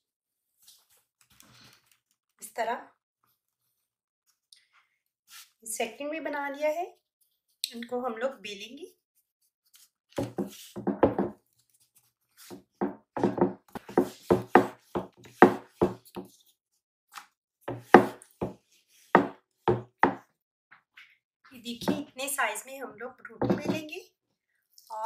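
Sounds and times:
rolling pin knocking on board: 10.2s - 11.4s, 12.8s - 16.0s, 17.7s - 18.6s, 19.2s - 20.2s, 21.8s - 22.1s, 23.4s - 23.8s.

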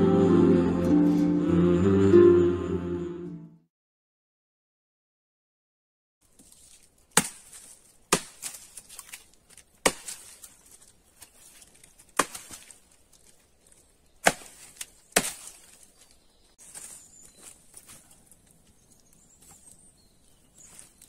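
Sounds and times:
axe chopping wood: 7.1s - 10.5s, 12.1s - 12.8s, 14.2s - 15.8s.

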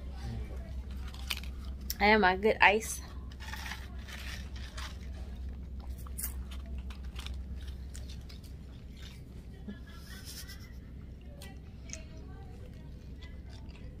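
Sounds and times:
chewing ice crunches: 3.3s - 9.8s, 11.3s - 14.0s.

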